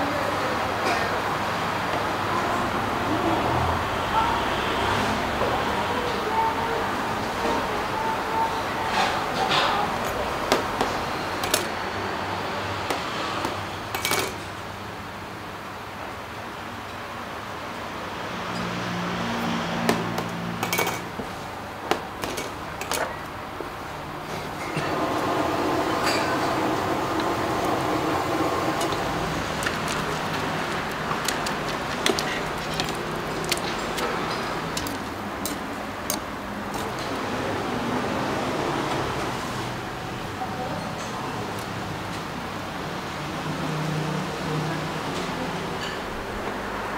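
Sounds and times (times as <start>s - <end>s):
utensils clinking against steel pot: 11.4s - 11.7s, 13.4s - 14.5s, 20.6s - 21.2s, 22.2s - 23.3s, 24.3s - 37.2s
pot of water boiling: 22.3s - 39.8s.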